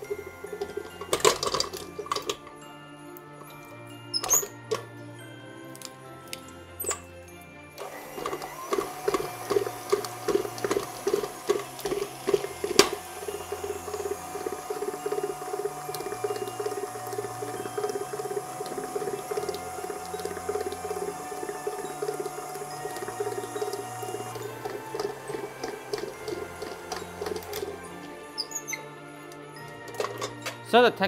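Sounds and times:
stand mixer motor whine: 0.0s - 2.4s, 7.7s - 28.7s, 29.4s - 30.5s.

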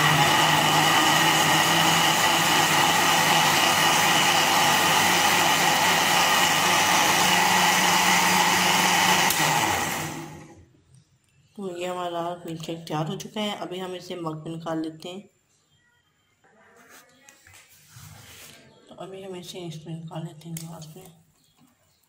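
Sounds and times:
electric blender motor whine: 0.0s - 10.6s.

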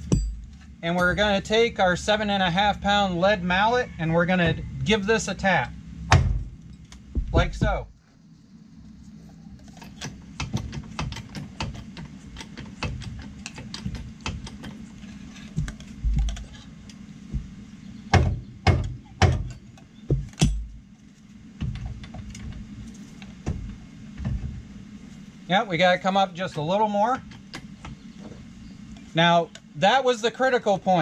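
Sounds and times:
loud metal knocks: 0.0s - 1.4s, 6.1s - 7.9s, 17.3s - 20.8s.

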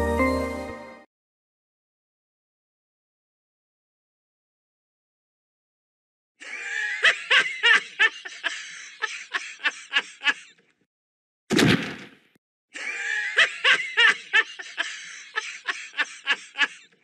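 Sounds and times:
cartoon character laughing: 6.4s - 10.6s, 12.8s - 17.0s
loud thud of falling: 11.5s - 12.3s.

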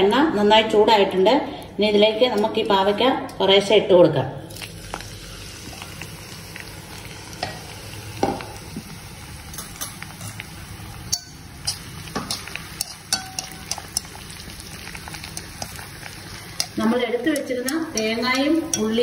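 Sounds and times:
oil crackling and popping: 4.5s - 19.0s
vegetables sizzling in hot oil: 4.5s - 19.0s
stirring in a pan: 9.5s - 19.0s.

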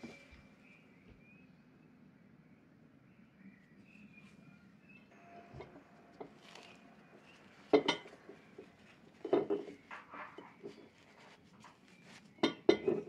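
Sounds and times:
paper napkin rustling: 5.5s - 13.0s.

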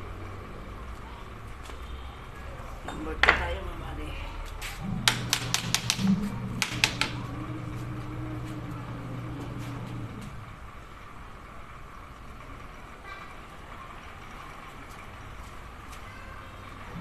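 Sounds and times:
low mechanical hum: 0.0s - 17.0s
sharp metallic taps: 5.0s - 7.2s.

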